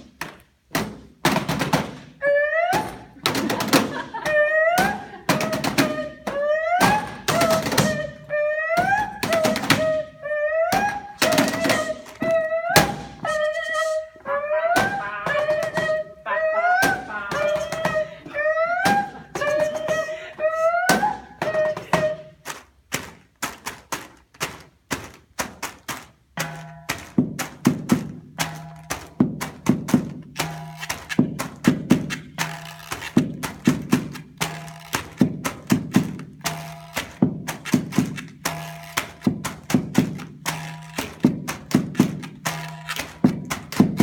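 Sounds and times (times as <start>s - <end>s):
stick knocking on cardboard box: 22.9s - 44.0s.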